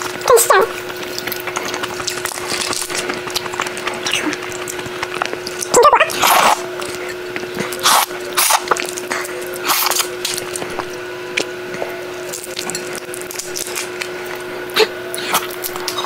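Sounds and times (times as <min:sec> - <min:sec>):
prawn shell peeling crackles: 0:00.0 - 0:16.0
wet slurps: 0:06.1 - 0:06.6, 0:07.6 - 0:10.1.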